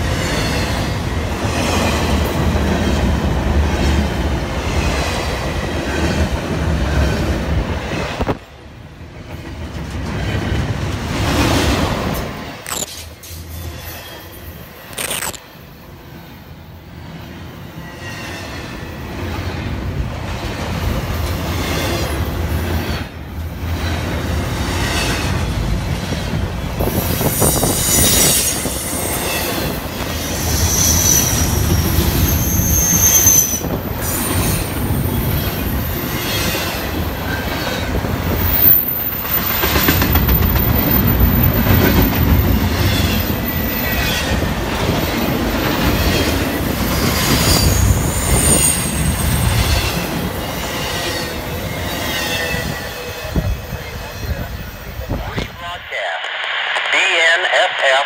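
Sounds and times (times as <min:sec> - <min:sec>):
train wheels rumbling on rail: 0:00.0 - 0:14.9, 0:16.0 - 0:56.9
wheel squeal: 0:30.4 - 0:34.7, 0:47.1 - 0:49.9.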